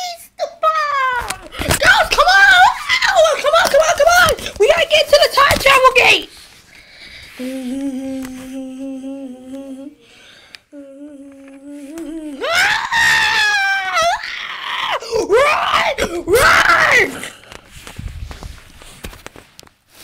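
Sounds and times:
person humming low note: 7.4s - 10.1s, 10.7s - 12.4s
person screaming: 11.7s - 17.3s.

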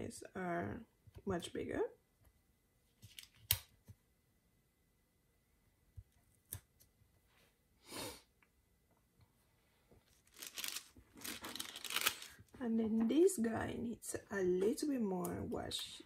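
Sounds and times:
paper rustling: 10.0s - 12.6s.

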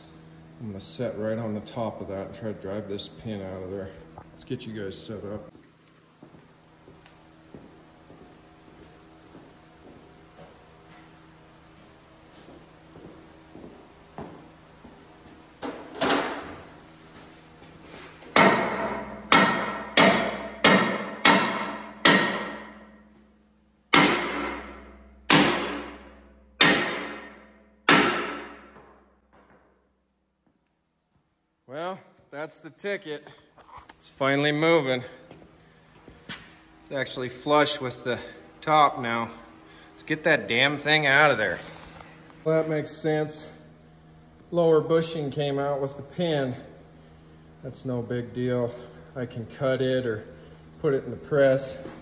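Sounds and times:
faint steady hum: 0.0s - 52.0s
sledgehammer striking steel pin: 18.4s - 22.9s, 23.9s - 29.0s.

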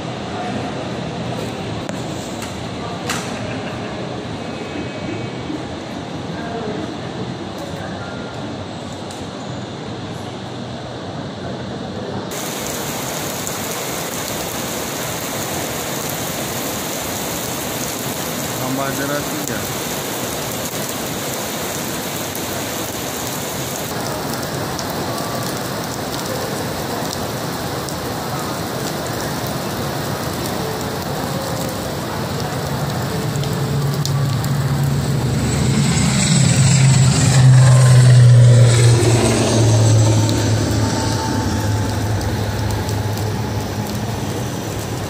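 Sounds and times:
turboprop airliner taking off: 12.2s - 45.0s
heavy rain falling: 12.3s - 45.0s.

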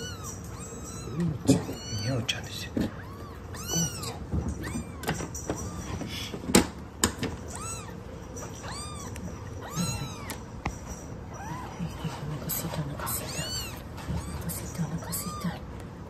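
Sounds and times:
kitten mewing: 0.0s - 6.6s, 7.4s - 8.0s, 8.6s - 10.5s, 12.9s - 15.7s.

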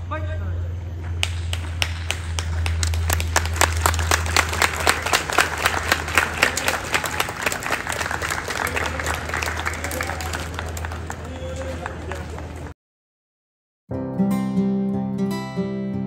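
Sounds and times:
steady low hum: 0.0s - 12.7s
crowd clapping: 1.2s - 12.8s.

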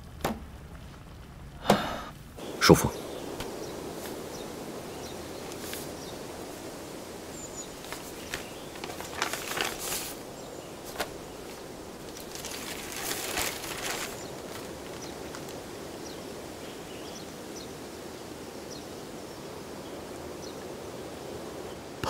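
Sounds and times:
faint background ambience: 0.0s - 22.0s
paper rustling and crackling: 3.4s - 4.3s, 5.1s - 16.0s.

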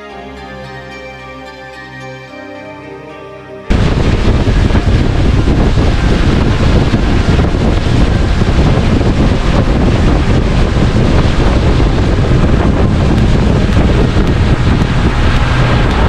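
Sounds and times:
water rushing along hull: 3.7s - 16.0s
wind buffeting microphone: 3.7s - 16.0s.

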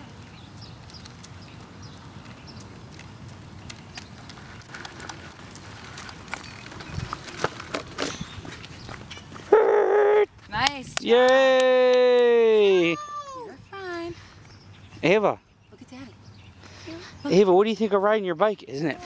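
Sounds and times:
bicycle clicks: 0.3s - 9.3s.

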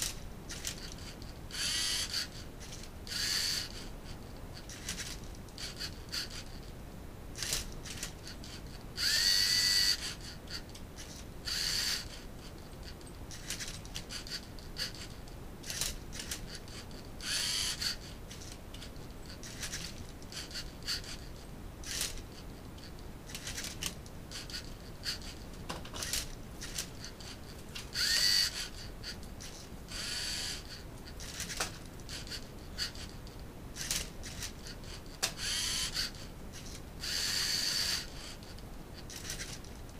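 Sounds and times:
servo motors whirring: 0.5s - 3.9s, 4.7s - 6.5s, 7.4s - 12.3s, 13.3s - 18.6s, 19.4s - 22.2s, 26.0s - 33.1s, 33.8s - 39.6s
small plastic clicks: 35.2s - 39.7s.

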